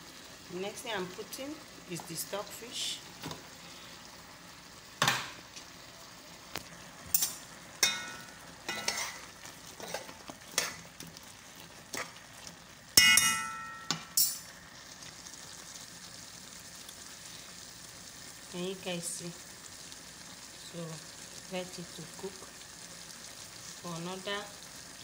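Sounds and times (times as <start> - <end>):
faint sizzle: 0.0 - 25.0
metal spoon clanking in a pot: 7.1 - 10.8, 13.0 - 14.5.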